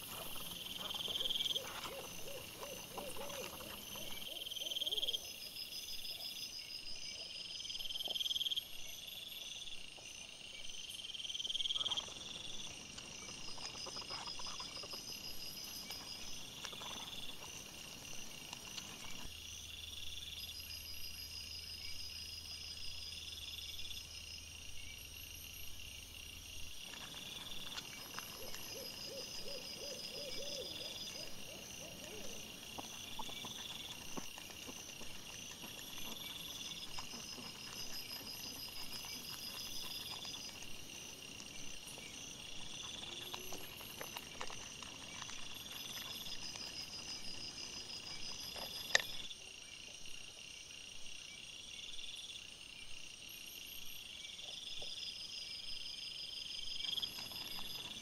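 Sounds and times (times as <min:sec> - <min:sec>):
high insect chorus: 0:00.0 - 0:58.0
wild boar grunting: 0:28.2 - 0:41.2.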